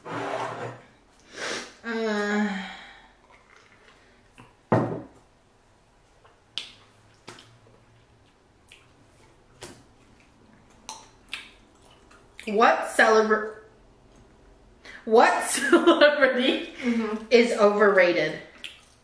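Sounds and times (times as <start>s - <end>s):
mouth clicks and smacks chewing: 6.2s - 12.6s, 18.5s - 19.0s.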